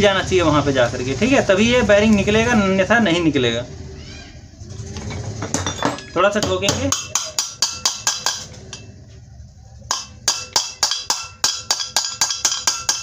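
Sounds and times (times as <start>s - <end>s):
small hammer tapping metal: 5.6s - 9.0s, 9.9s - 13.0s.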